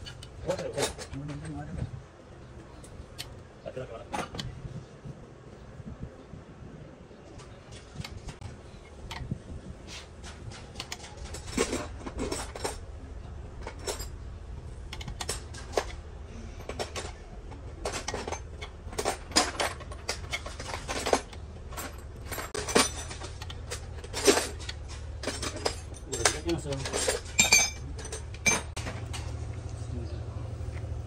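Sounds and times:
metal tools clinking: 0:00.0 - 0:01.9, 0:09.9 - 0:29.4
low steady hum: 0:00.0 - 0:31.0.

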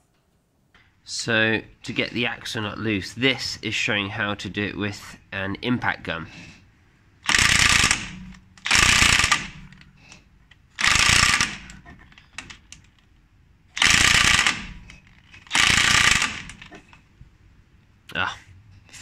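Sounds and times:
impact wrench hammering: 0:07.2 - 0:09.8, 0:10.8 - 0:11.8, 0:13.8 - 0:16.8.

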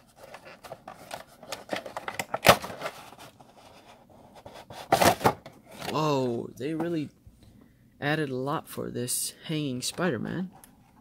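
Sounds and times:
cardboard and plastic crinkling: 0:00.0 - 0:06.0.

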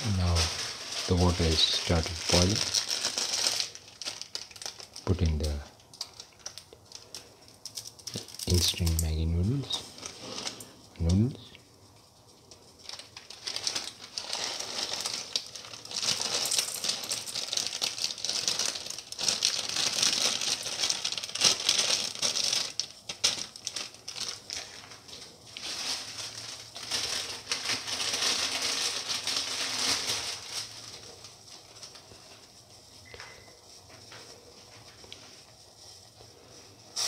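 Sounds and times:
water boiling in a pan: 0:11.7 - 0:26.8.

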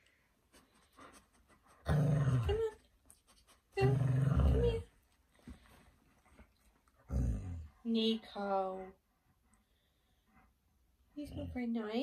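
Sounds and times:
dog growling grumbles: 0:01.9 - 0:02.7, 0:03.8 - 0:04.9, 0:07.1 - 0:07.8.

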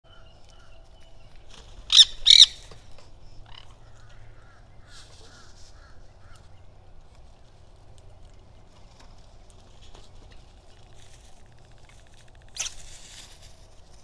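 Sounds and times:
faint bird calls: 0:00.1 - 0:06.8
parakeet screeching: 0:01.9 - 0:02.6.

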